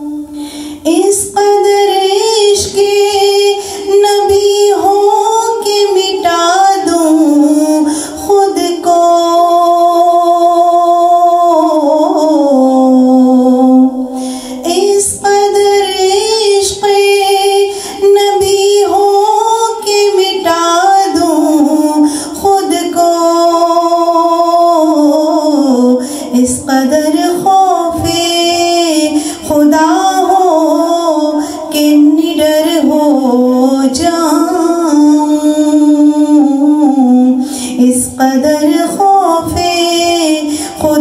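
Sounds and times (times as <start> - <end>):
woman singing: 0.0 - 41.0.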